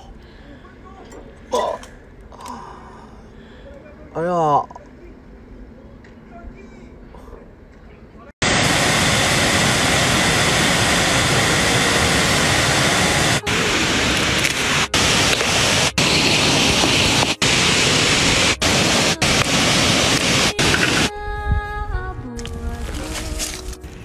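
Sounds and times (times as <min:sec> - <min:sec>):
water rushing over rocks: 0:08.4 - 0:21.1.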